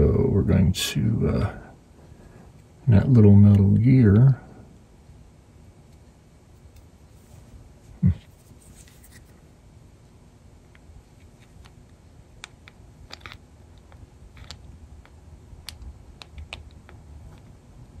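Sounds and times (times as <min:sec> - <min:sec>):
faint low hum: 0:00.0 - 0:18.0
small parts clicking: 0:12.4 - 0:17.5.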